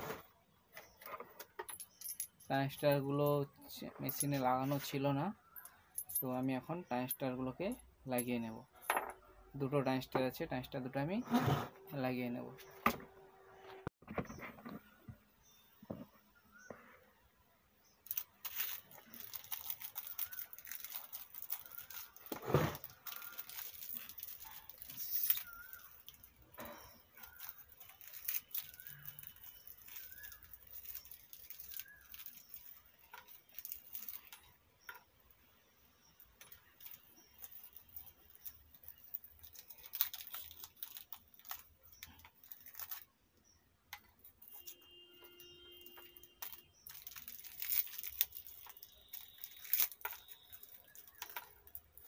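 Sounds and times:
plastic packets crinkling and tearing: 18.0 - 34.5, 36.4 - 43.2, 45.8 - 52.0
small metal parts clicking: 18.0 - 35.0, 36.3 - 43.1, 45.8 - 52.0.

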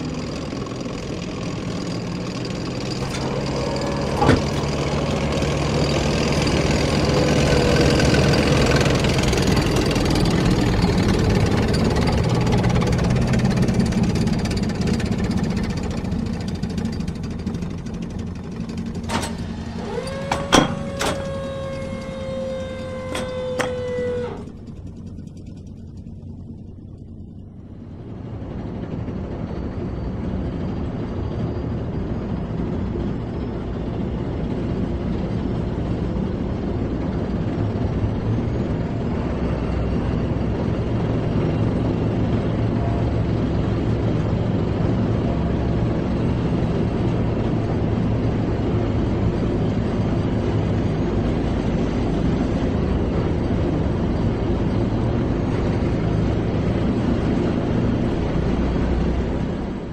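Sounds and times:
tank engine running: 0.0 - 59.9.

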